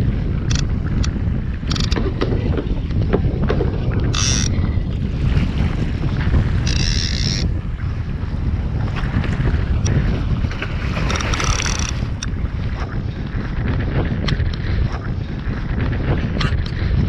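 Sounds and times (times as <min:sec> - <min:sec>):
wind buffeting microphone: 0:00.0 - 0:17.0
water sloshing against kayak: 0:00.1 - 0:17.0.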